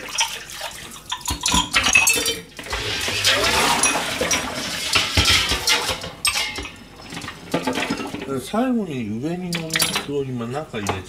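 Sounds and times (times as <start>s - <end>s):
water running from tap: 0.0s - 1.8s, 2.5s - 6.0s
dishes clattering: 0.0s - 8.3s
dishes and cutlery clinking: 1.1s - 2.6s, 3.2s - 8.3s.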